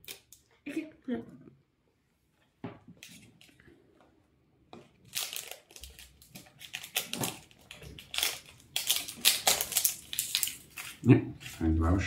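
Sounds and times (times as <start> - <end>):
plastic label crinkling and tearing: 0.0 - 0.7, 5.0 - 12.0.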